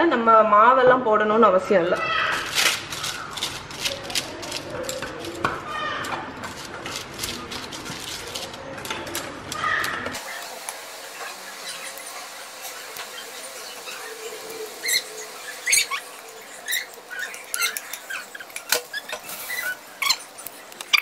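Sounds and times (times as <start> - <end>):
spatula scraping glass bowl: 11.6 - 21.0.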